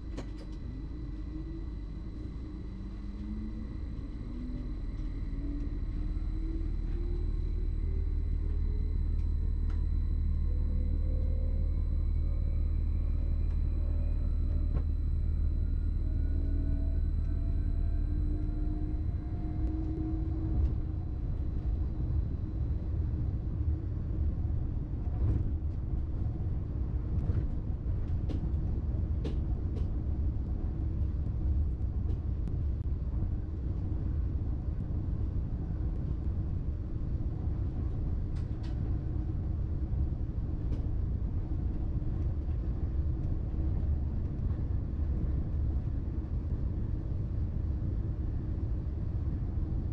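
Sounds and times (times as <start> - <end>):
train rumbling on track: 0.0 - 49.9
electric motor whine: 0.1 - 22.6.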